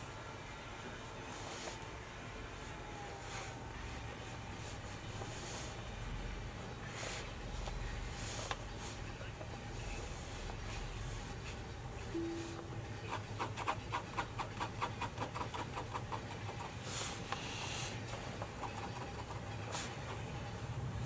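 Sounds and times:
pen scratching on paper: 0:13.0 - 0:20.4.

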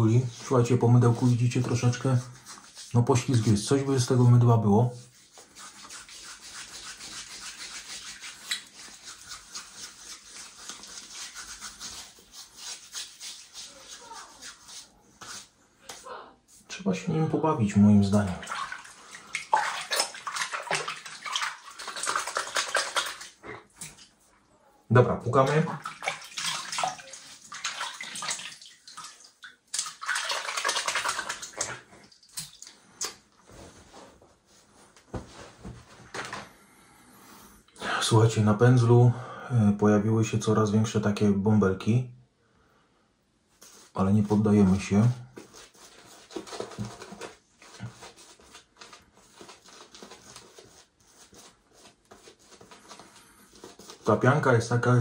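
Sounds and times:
shaving brush swishing lather: 0:00.1 - 0:15.6, 0:25.4 - 0:28.7, 0:45.4 - 0:54.2.

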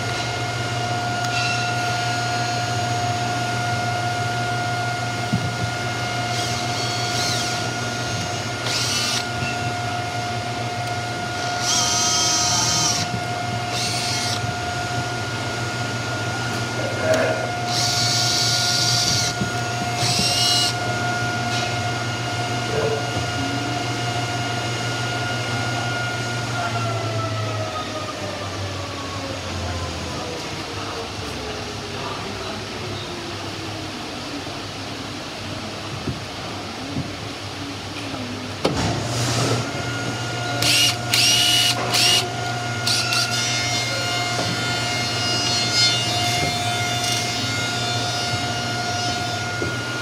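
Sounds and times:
machine humming: 0:00.0 - 0:30.3, 0:37.2 - 0:50.0
cordless drill bursts: 0:06.2 - 0:09.6, 0:11.4 - 0:14.5, 0:17.6 - 0:20.9, 0:40.5 - 0:44.3.

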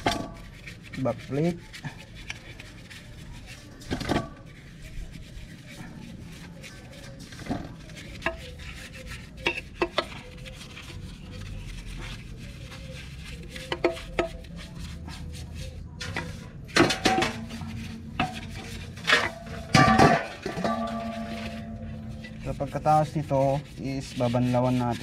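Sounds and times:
paintbrush scrubbing metal: 0:00.0 - 0:25.0
knocks against metal basin: 0:16.2 - 0:17.6, 0:19.1 - 0:21.7
metal basin ringing: 0:18.2 - 0:22.6.

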